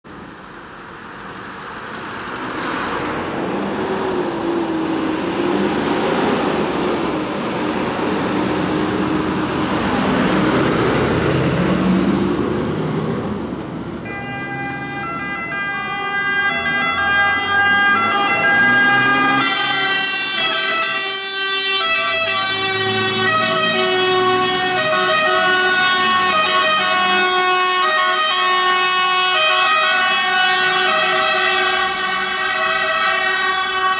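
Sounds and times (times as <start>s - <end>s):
traffic noise: 0.0s - 33.9s
truck engine: 0.0s - 33.9s
two-tone siren horns blaring: 14.0s - 33.9s.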